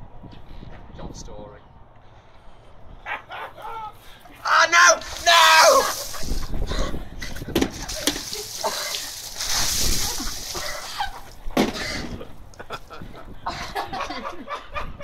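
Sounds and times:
water splashing on ground: 4.5s - 13.0s.

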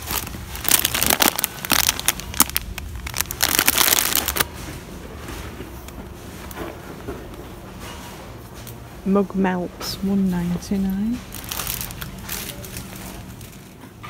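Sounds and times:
plastic packet crinkling: 0.0s - 4.5s, 11.1s - 13.8s.

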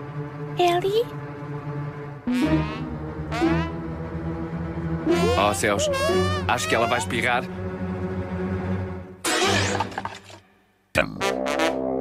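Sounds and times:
low music chord: 0.0s - 9.1s.

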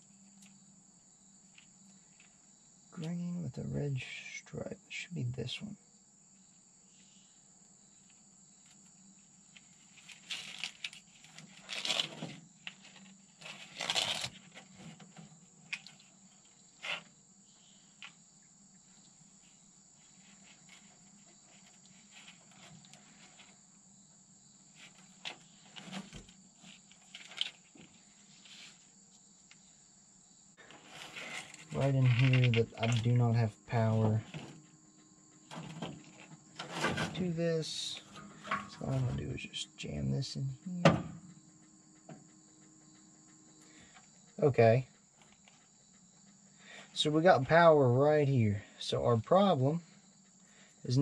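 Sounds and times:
insects droning: 0.0s - 51.0s
wires rustling and clicking: 9.5s - 17.1s, 24.8s - 28.6s, 30.6s - 33.2s.

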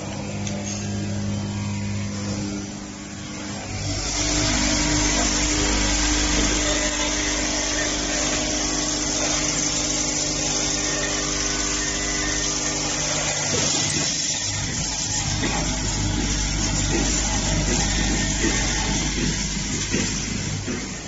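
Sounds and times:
machine electric hum: 0.0s - 21.0s
mechanical hiss and rattle: 11.6s - 21.0s.

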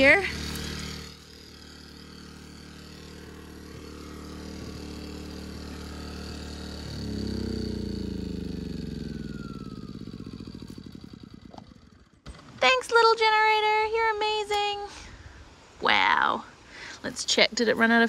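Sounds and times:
engine winding down: 0.0s - 13.4s
small generator engine running: 0.0s - 15.0s.

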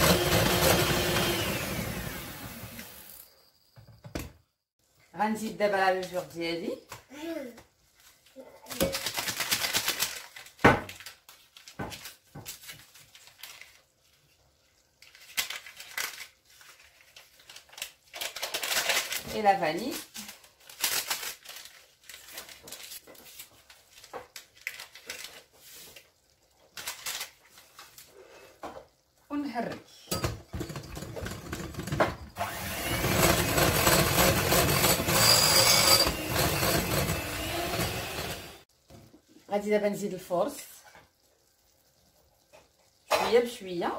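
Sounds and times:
electric hand mixer whisking batter: 0.0s - 3.2s, 32.4s - 38.6s
paper packet crinkling: 8.6s - 28.1s.

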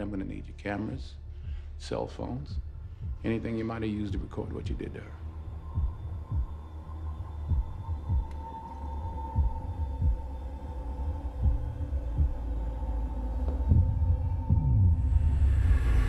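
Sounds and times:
low drone: 0.0s - 16.0s
low heartbeat-like thumps: 0.0s - 16.0s.

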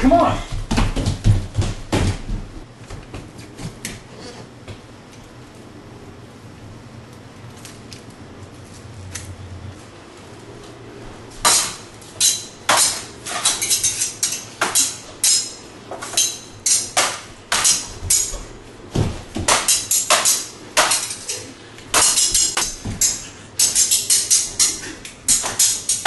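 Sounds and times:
metal blades clashing: 11.4s - 18.5s, 19.5s - 26.0s.

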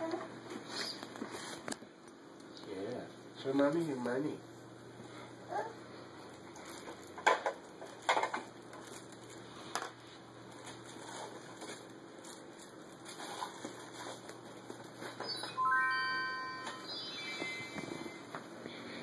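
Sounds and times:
tissue paper rustling and crinkling: 10.5s - 15.1s
rising electronic tones: 15.4s - 18.3s.

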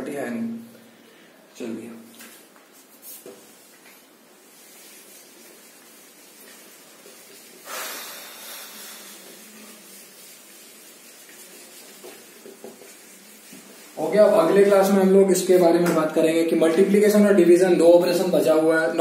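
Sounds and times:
faint steady hiss: 0.0s - 19.0s
eraser rubbing whiteboard: 4.5s - 15.6s.

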